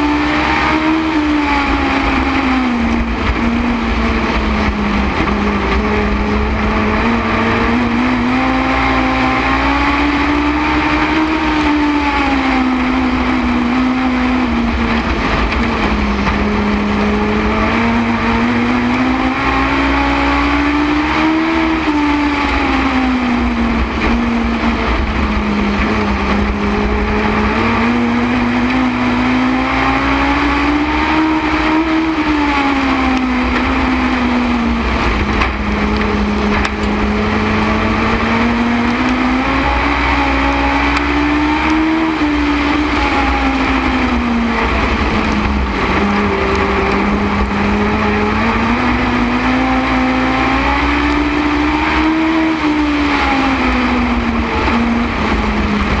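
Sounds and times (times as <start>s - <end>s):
racing engine revving: 0.0s - 56.0s
steady low rumble: 1.1s - 9.6s, 11.6s - 19.7s, 22.4s - 30.1s, 32.1s - 39.7s, 42.2s - 51.5s, 52.7s - 56.0s.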